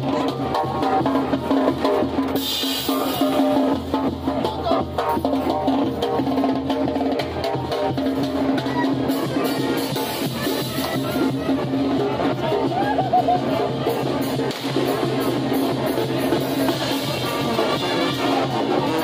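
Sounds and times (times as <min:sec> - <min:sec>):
bass drum and cymbal beating: 0:00.0 - 0:19.0
sousaphones playing bass line: 0:00.0 - 0:19.0
cymbal crash: 0:02.4 - 0:03.9, 0:14.4 - 0:18.5
trumpets playing: 0:08.5 - 0:12.9, 0:16.2 - 0:19.0.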